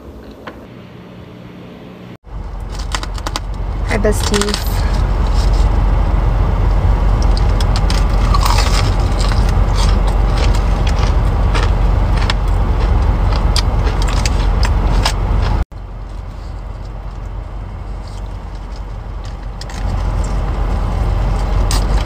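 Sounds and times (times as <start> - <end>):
low rumble inside car: 2.3 - 22.0
chewing and crunching food: 2.5 - 22.0.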